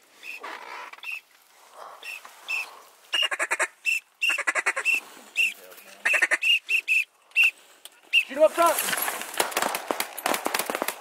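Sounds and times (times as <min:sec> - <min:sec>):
ducks whistling calls: 0:01.8 - 0:08.4.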